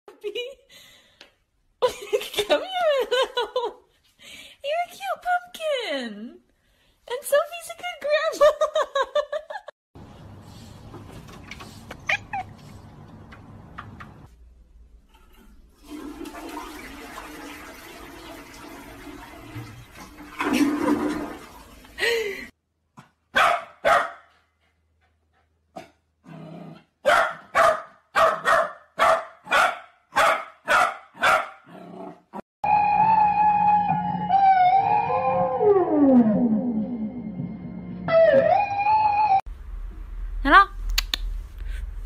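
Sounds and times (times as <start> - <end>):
toilet flushing: 15.3 - 22.4
dog barking: 23.3 - 24.3, 27.0 - 31.7.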